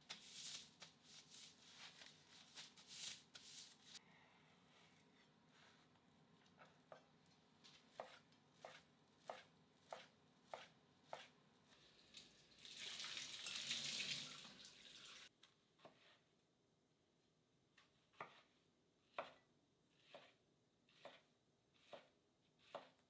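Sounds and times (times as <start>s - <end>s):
knife cutting onto cutting board: 20.0s - 23.0s.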